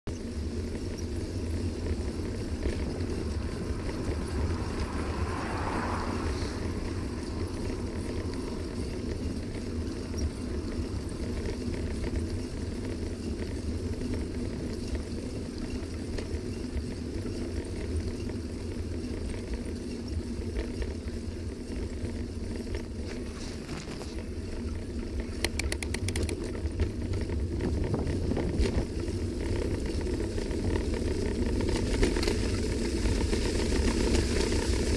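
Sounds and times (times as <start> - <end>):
bicycle tyres rolling on wet leaves: 0.1 - 34.9
wind rumble on microphone: 0.1 - 34.9
fine ticks: 22.6 - 29.0.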